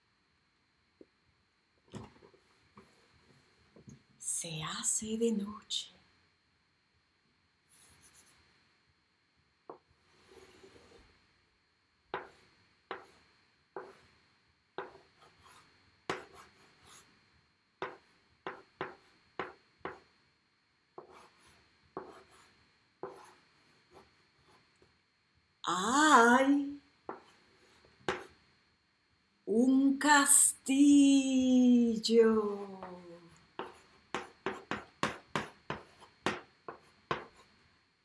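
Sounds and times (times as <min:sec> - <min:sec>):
chalk on a blackboard: 0:07.7 - 0:08.4, 0:12.1 - 0:14.2, 0:14.8 - 0:17.1, 0:17.8 - 0:20.1, 0:21.0 - 0:24.6, 0:27.1 - 0:28.4, 0:32.8 - 0:37.6.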